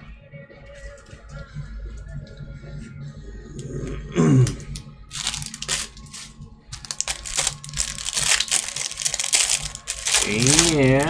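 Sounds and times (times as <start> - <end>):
plastic wrapper tearing and crinkling: 4.4 - 11.0.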